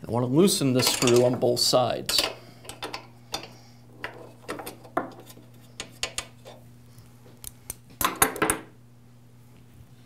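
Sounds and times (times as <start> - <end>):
metal wrenches clinking on nuts: 0.8 - 1.5.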